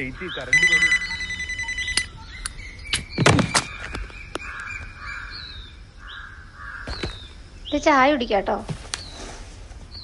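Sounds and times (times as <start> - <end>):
crows cawing: 0.0 - 1.6, 3.6 - 7.3.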